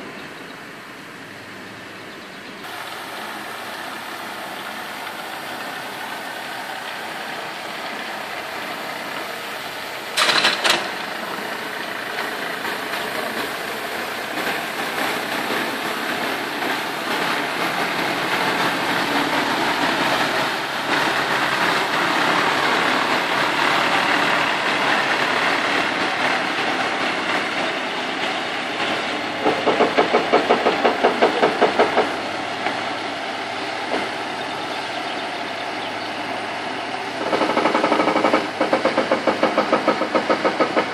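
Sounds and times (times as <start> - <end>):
truck diesel engine running: 0.0 - 40.9
rapid rhythmic knocking: 12.1 - 32.8, 37.1 - 40.9.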